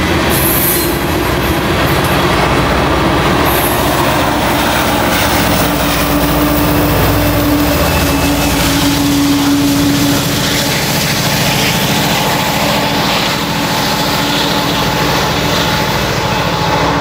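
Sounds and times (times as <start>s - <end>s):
diesel locomotive engine throbbing: 0.0s - 17.0s.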